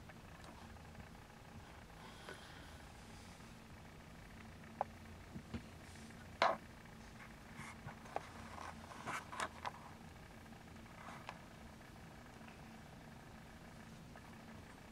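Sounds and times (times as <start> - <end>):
soft scratchy rustles: 7.0 - 10.0.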